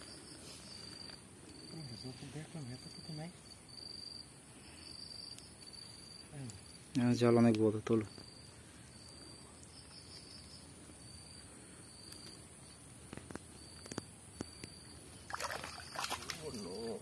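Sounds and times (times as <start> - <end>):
insects chirping: 0.0 - 17.0
faint clicks of wet net: 15.3 - 16.9.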